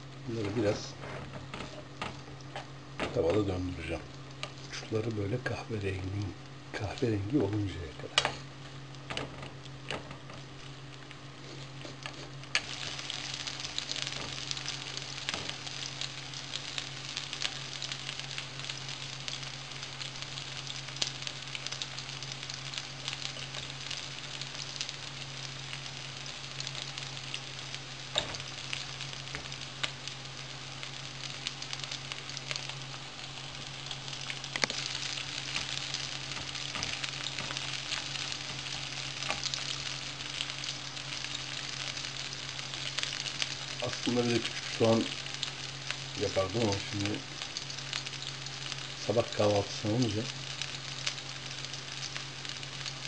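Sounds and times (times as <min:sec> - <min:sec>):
potatoes sizzling in a pan: 0:00.0 - 0:53.0
wooden spoon scraping a pan: 0:00.4 - 0:03.3.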